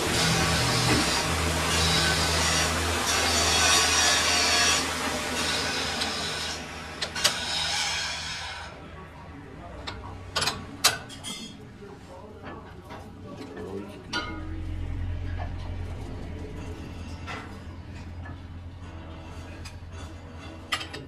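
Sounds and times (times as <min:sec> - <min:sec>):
machine hum and hiss: 0:00.0 - 0:08.5.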